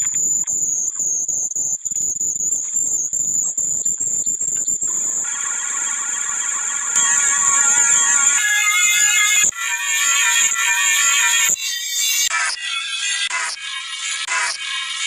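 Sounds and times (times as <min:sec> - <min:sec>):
high whine: 0:04.8 - 0:11.5.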